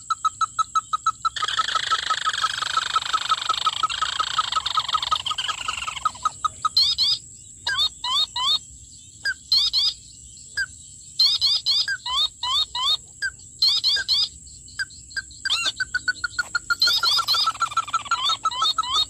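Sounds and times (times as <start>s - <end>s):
bird calls from phone speaker: 15.2s - 19.0s.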